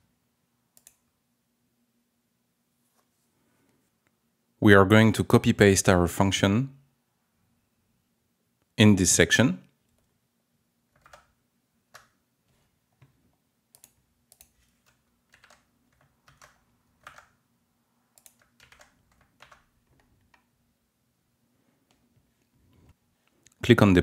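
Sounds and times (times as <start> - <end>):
computer keys and mouse clicking: 0.7 - 1.1, 10.9 - 17.4, 18.1 - 20.5.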